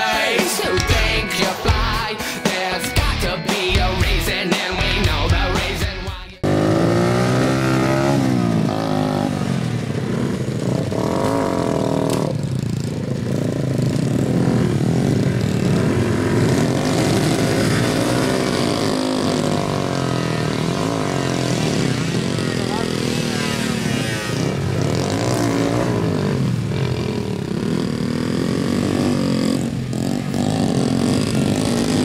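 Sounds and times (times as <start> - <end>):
small motorcycle engines revving: 6.4 - 32.0.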